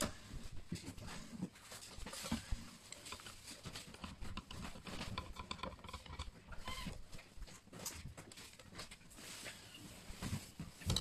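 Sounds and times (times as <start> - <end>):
screwdriver clicking and scraping: 2.9 - 7.0.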